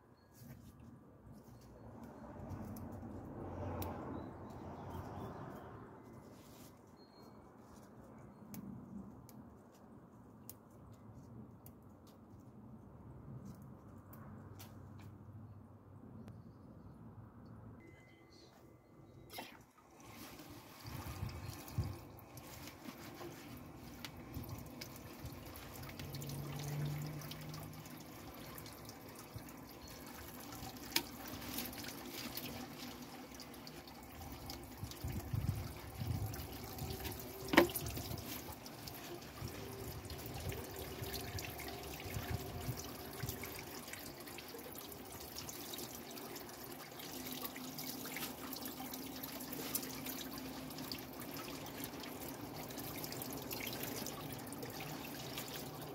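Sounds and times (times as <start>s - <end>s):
leaves washed in water: 19.3s - 55.9s
water running from a tap: 20.0s - 55.9s.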